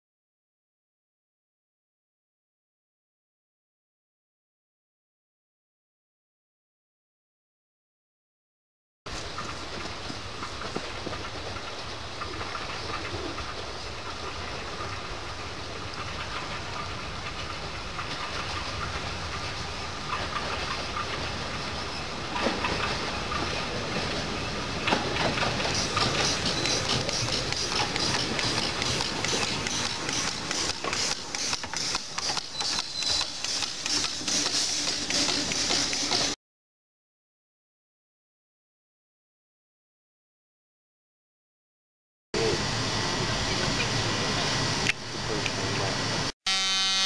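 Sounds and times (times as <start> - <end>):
steam locomotive exhaust beats: 9.2 - 36.4
hiss of steam: 25.4 - 36.4.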